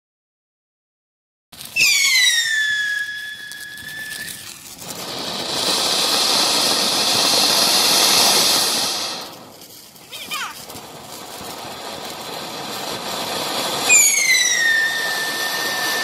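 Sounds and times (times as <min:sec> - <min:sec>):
firework fountain hissing: 0:01.6 - 0:16.0
high piercing whistle: 0:01.8 - 0:04.6, 0:13.8 - 0:16.0.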